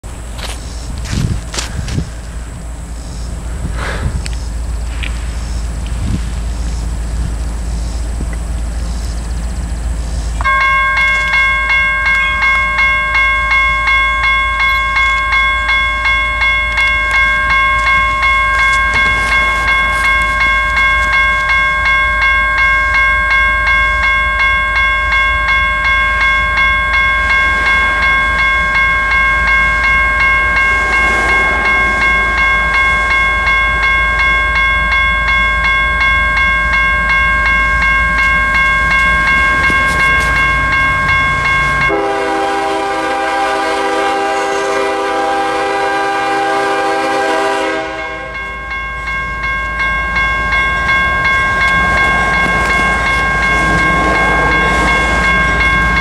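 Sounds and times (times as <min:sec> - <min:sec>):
electronic crossing bell dinging: 0:10.4 - 0:42.5, 0:46.6 - 0:56.0.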